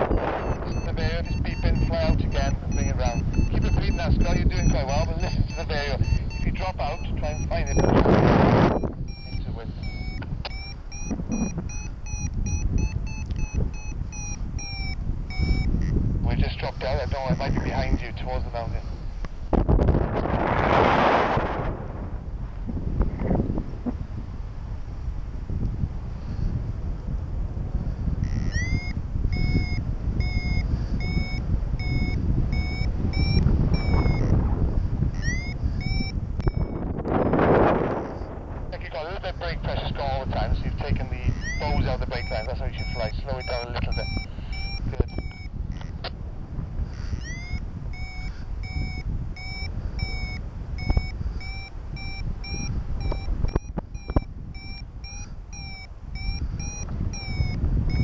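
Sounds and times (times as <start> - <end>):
variometer short beeps: 0.0 - 16.0, 17.0 - 18.3, 28.2 - 34.4, 35.1 - 38.2, 38.8 - 46.2, 47.1 - 58.0
wind on microphone: 0.0 - 58.0
sharp clicks: 13.2 - 13.6.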